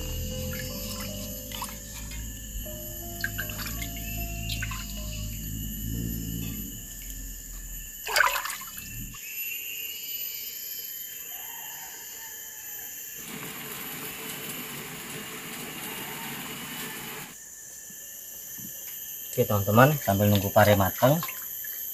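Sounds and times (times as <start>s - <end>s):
high insect calls: 0.0s - 21.9s
water boiling in a saucepan: 13.2s - 17.4s.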